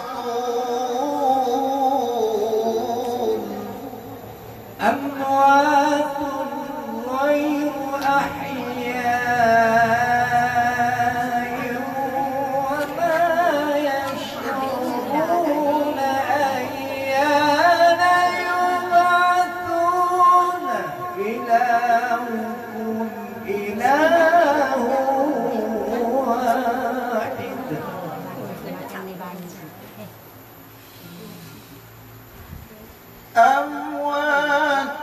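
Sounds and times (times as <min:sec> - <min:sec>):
man chanting melodic recitation: 0:00.0 - 0:28.6, 0:33.3 - 0:35.0.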